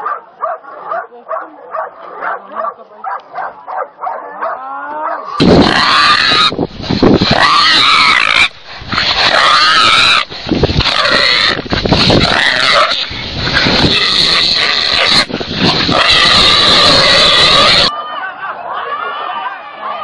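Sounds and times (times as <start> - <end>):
wild boar squealing: 4.4 - 6.6, 7.2 - 18.0.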